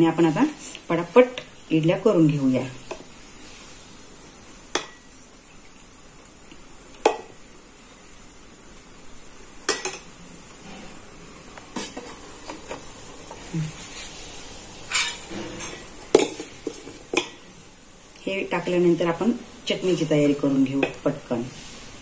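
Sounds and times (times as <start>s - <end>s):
metal plates clanking: 14.9s - 16.0s.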